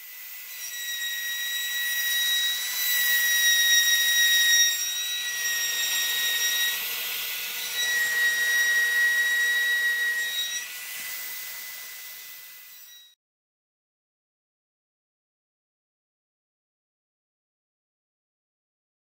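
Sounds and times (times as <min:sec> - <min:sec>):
router spindle high whine: 0:00.0 - 0:13.2.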